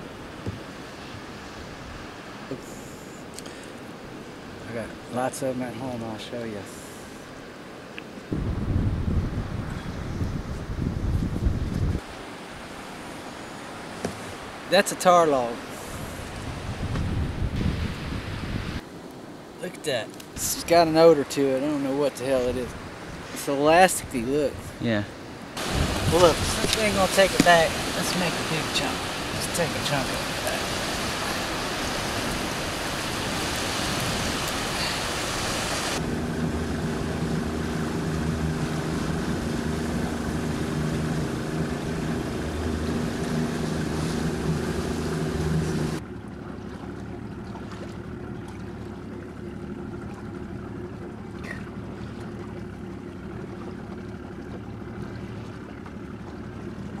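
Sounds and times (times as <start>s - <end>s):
surf: 0.0s - 57.0s
wind: 0.0s - 57.0s
boat motor running: 22.2s - 57.0s.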